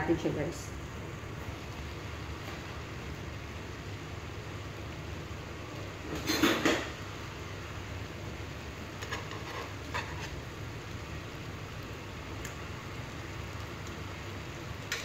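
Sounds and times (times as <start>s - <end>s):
spoon scraping wok: 8.9s - 10.5s.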